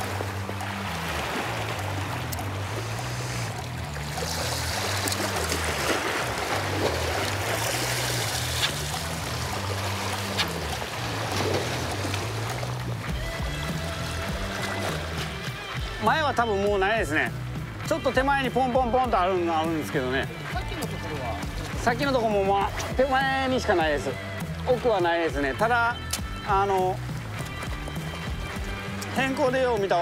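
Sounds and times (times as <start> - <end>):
sea water washing: 0.0 - 30.0.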